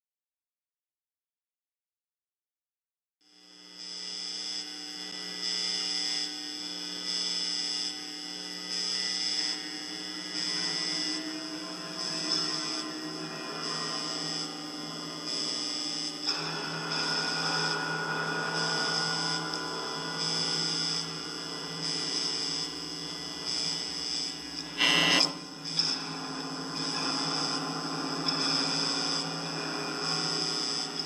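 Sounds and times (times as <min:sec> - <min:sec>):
steady electrical hum: 0:05.1 - 0:31.0
rough noise: 0:10.2 - 0:31.0.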